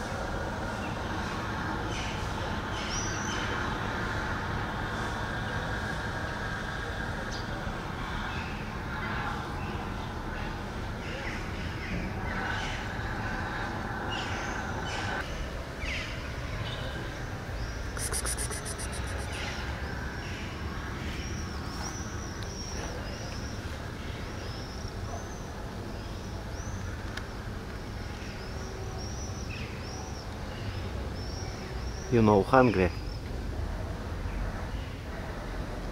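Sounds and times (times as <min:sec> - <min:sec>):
small bird chirping: 0:17.6 - 0:19.6.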